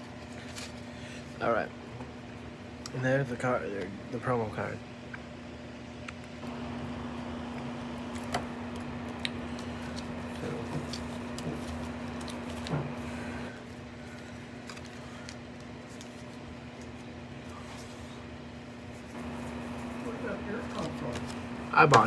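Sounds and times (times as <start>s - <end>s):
cards and packaging rustling: 0.0s - 0.9s, 8.1s - 18.1s, 19.0s - 22.0s
steady low hum: 0.0s - 22.0s.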